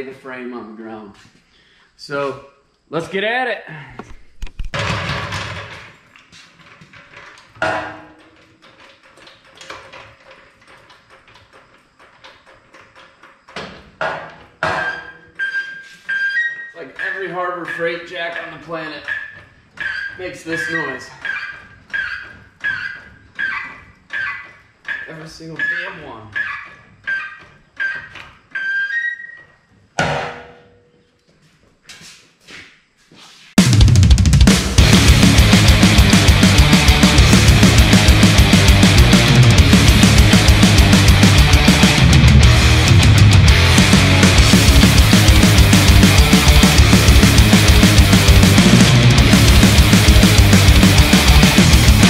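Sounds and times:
hydraulic floor jack pumping: 0:04.7 - 0:29.4
high squeak: 0:14.7 - 0:29.6
sharp metal clank ringing: 0:30.0 - 0:31.0.

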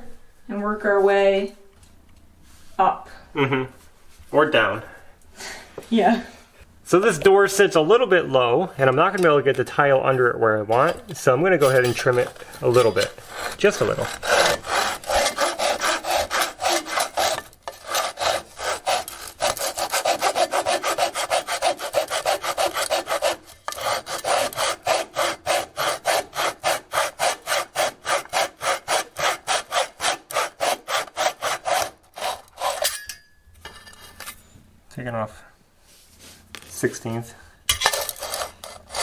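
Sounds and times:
hand saw cutting wood: 0:11.6 - 0:33.0, 0:37.8 - 0:39.0.

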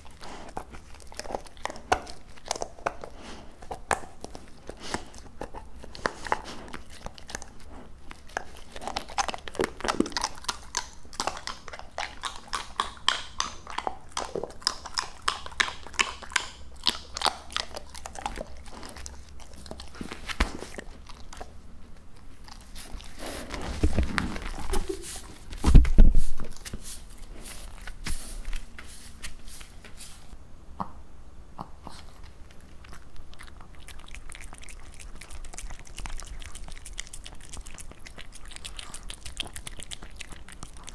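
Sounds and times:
dog chewing and crunching: 0:00.0 - 0:29.9, 0:31.6 - 0:40.9.

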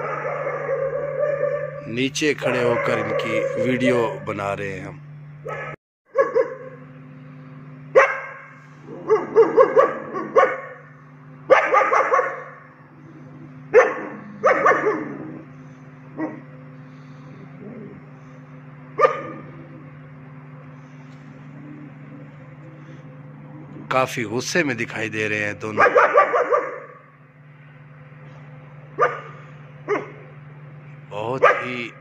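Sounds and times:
puppies barking: 0:00.0 - 0:04.3, 0:05.4 - 0:06.8, 0:08.0 - 0:10.9, 0:11.5 - 0:15.5, 0:16.1 - 0:16.5, 0:18.9 - 0:19.8, 0:25.6 - 0:27.1, 0:28.9 - 0:30.4, 0:31.2 - 0:32.0.

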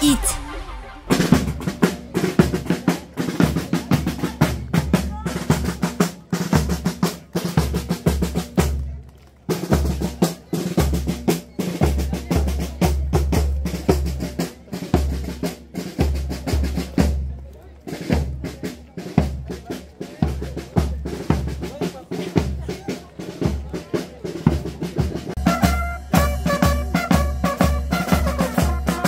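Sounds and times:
bass drum beat: 0:00.0 - 0:02.7
fast snare drum rolls: 0:00.0 - 0:08.8, 0:17.9 - 0:29.0.

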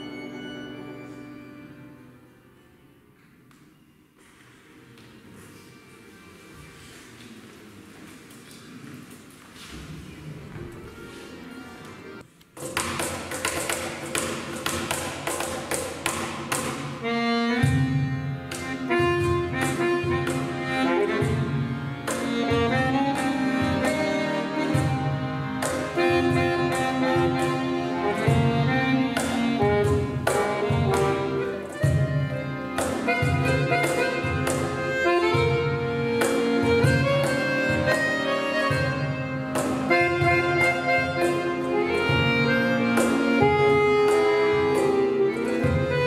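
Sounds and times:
accordions playing chords and melody: 0:00.0 - 0:03.9, 0:10.3 - 0:46.0
cajon beat: 0:12.5 - 0:46.0.

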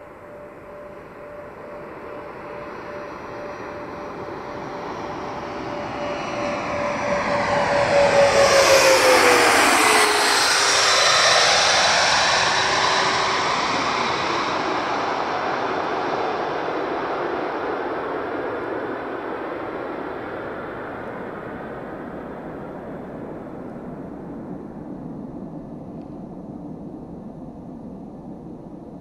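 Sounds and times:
aircraft passing low overhead: 0:00.0 - 0:29.0.

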